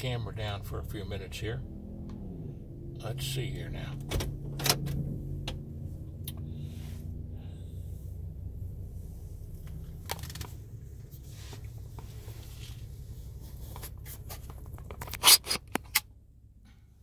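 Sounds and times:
low steady rumble: 0.0s - 17.0s
phone handling rustling and scraping: 9.6s - 16.0s.

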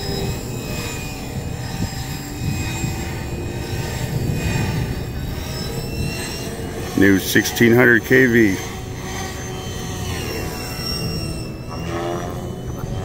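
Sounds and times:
rc helicopter motor whine: 0.0s - 13.0s.

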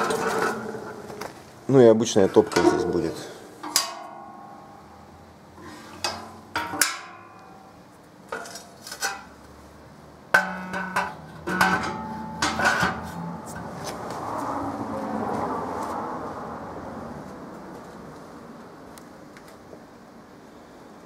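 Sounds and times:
metal clanks and knocks: 0.0s - 1.4s, 2.3s - 5.1s, 5.8s - 9.4s, 10.3s - 14.0s.

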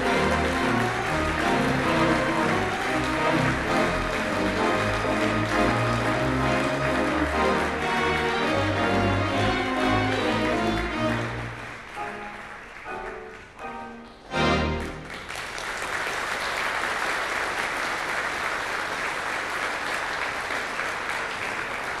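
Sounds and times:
pipe organ playing: 0.0s - 15.1s
audience applause: 0.0s - 22.0s.

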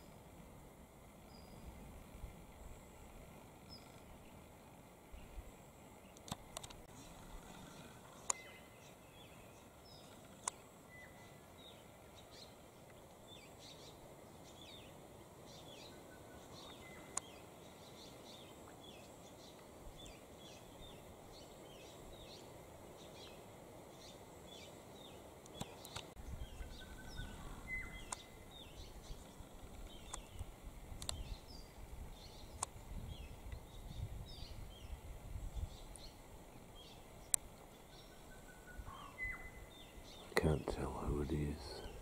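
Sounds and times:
small birds chirping: 2.6s - 4.5s, 5.1s - 42.0s
whistled bird notes: 37.9s - 42.0s.

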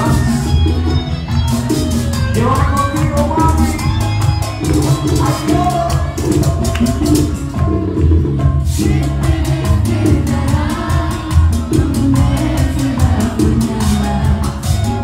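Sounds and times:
male singer: 0.0s - 0.6s, 2.4s - 3.7s, 8.8s - 15.0s
fast percussion beat: 0.0s - 15.0s
latin dance band playing: 0.0s - 15.0s.

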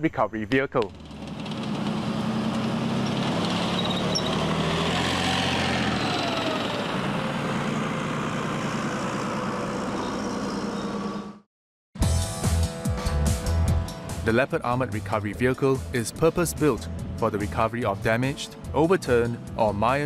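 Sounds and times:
diesel engine and tracks running: 0.8s - 11.5s
rising and falling whine: 1.9s - 11.4s.

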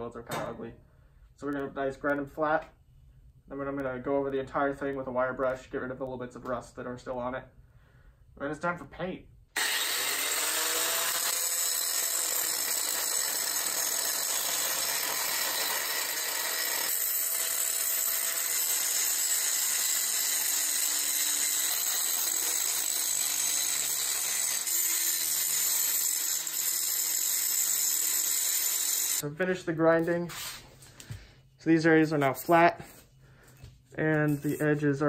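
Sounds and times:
angle grinder grinding metal: 9.6s - 29.2s.

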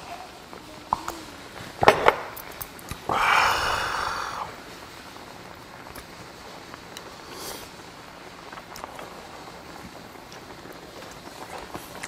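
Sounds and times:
person exhaling loudly: 3.1s - 4.6s.

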